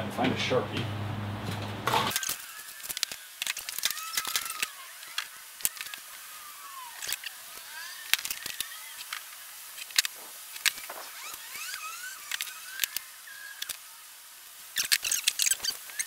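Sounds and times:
marker squeaking on plywood: 0:14.8 - 0:16.0.

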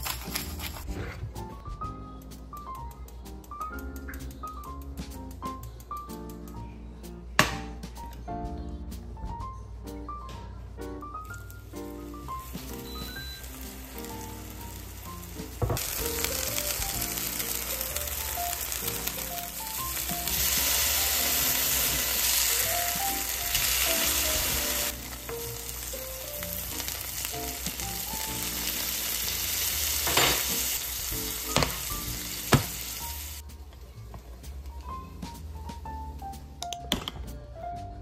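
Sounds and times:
soft background music: 0:00.0 - 0:38.0
fish sizzling in frying pan: 0:11.4 - 0:33.4.

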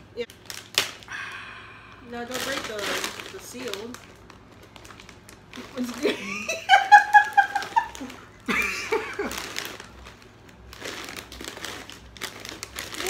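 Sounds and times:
women laughing: 0:06.0 - 0:09.4.

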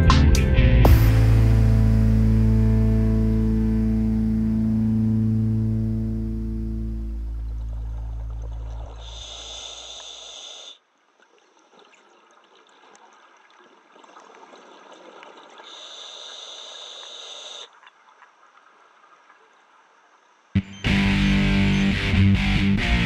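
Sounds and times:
background music: 0:00.0 - 0:07.6, 0:20.6 - 0:23.0
regulator air hissing: 0:09.0 - 0:10.8, 0:15.7 - 0:17.7.

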